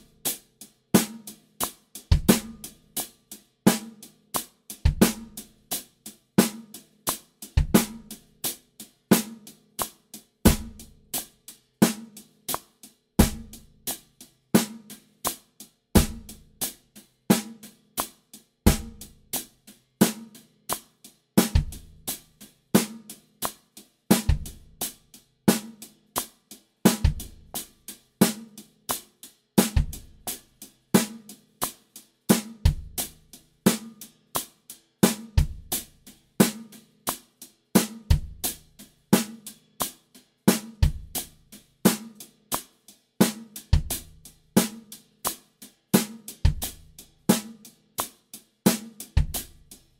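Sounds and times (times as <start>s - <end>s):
snare drum backbeats: 4.9s - 5.4s, 7.6s - 8.2s, 13.2s - 13.6s, 16.0s - 16.4s, 22.8s - 24.6s, 26.9s - 27.4s, 29.6s - 30.4s, 46.0s - 48.1s
bass drum notes: 35.4s - 35.8s, 40.8s - 41.3s, 49.2s - 49.6s.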